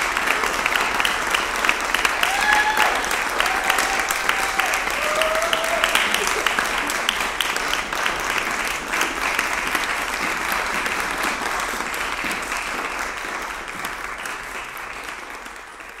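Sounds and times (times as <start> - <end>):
audience applauding: 0.0 - 16.0.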